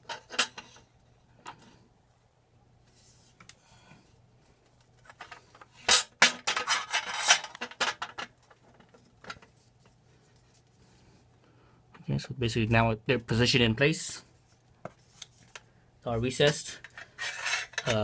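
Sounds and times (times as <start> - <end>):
metal pipes clinking and scraping: 0.0 - 1.7, 5.0 - 8.4, 16.3 - 18.0.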